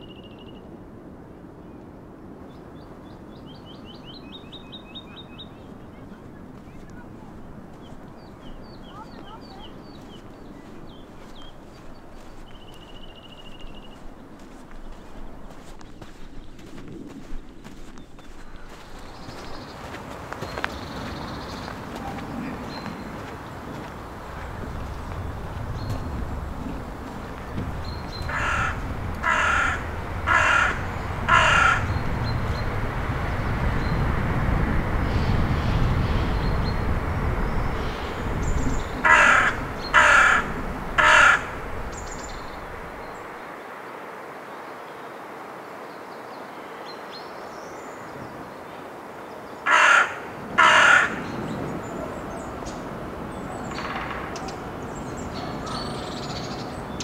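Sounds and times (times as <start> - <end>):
crow cawing: 28.1 - 32.0, 39.0 - 43.0, 49.6 - 51.4.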